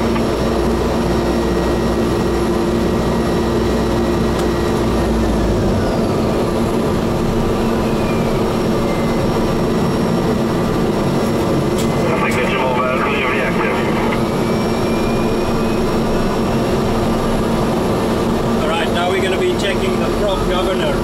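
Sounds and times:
turboprop engine running: 0.0s - 21.0s.

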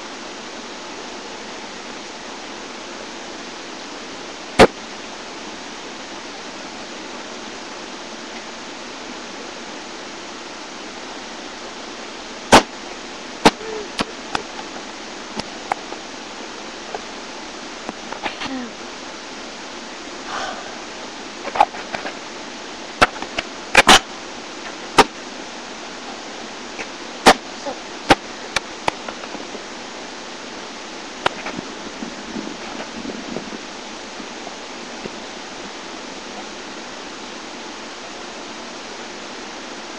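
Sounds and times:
steady hiss: 0.0s - 39.9s.

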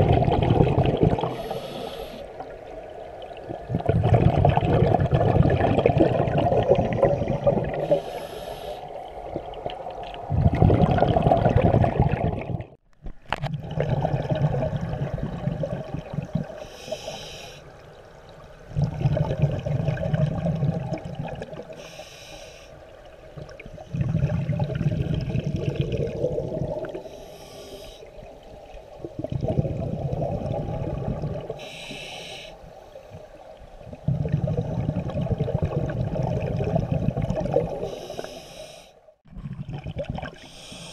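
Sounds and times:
exhaled bubbles rushing: 0.0s - 1.7s, 2.4s - 8.2s, 9.0s - 16.6s, 18.7s - 21.8s, 23.4s - 27.1s, 28.5s - 31.6s, 33.8s - 38.0s, 39.3s - 40.5s
regulator inhale hiss: 1.3s - 2.4s, 7.8s - 9.0s, 16.6s - 17.8s, 21.7s - 22.8s, 27.0s - 28.2s, 31.6s - 33.3s, 37.8s - 39.1s, 40.4s - 40.9s.

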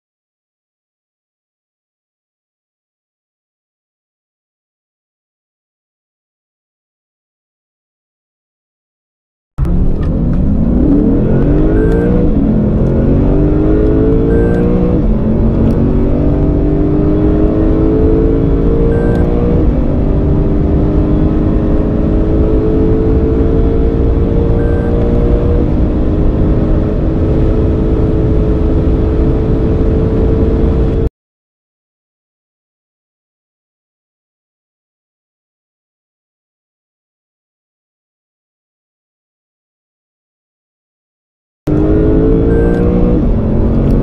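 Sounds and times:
sports car engine accelerating: 9.6s - 31.1s, 41.7s - 44.0s.

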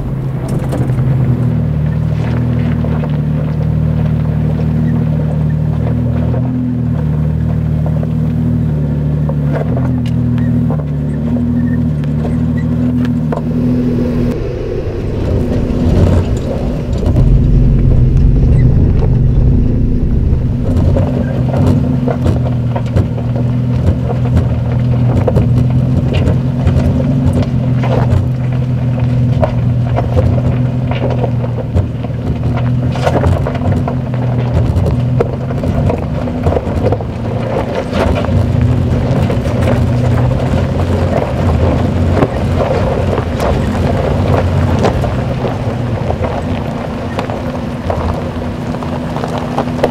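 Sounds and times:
car engine at low revs: 0.0s - 49.9s
stones crunching under tyres: 15.0s - 49.9s.

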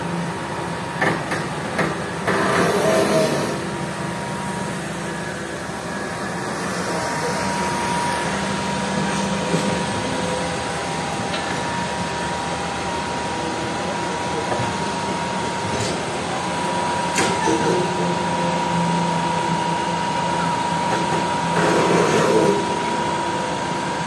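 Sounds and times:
excavator diesel engine running: 0.0s - 24.0s
thin steady whine: 3.9s - 17.0s.

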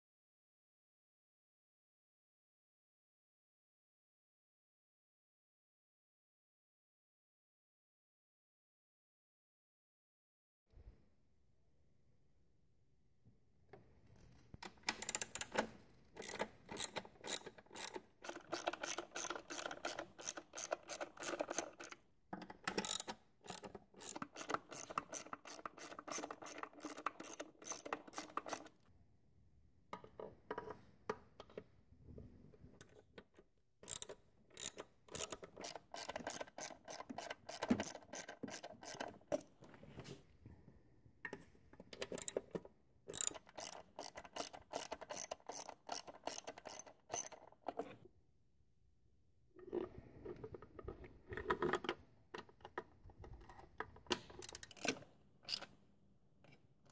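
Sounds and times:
socket ratchet clicking: 14.8s - 28.7s, 33.8s - 39.2s, 42.0s - 42.4s, 43.1s - 47.5s, 54.3s - 55.7s.

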